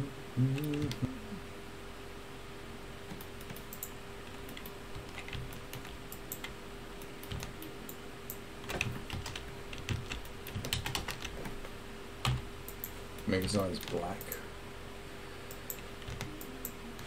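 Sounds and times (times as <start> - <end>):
faint steady hum: 0.0 - 17.0
keyboard keys clicking: 3.1 - 6.6, 7.2 - 7.7, 8.7 - 11.6, 15.6 - 16.8.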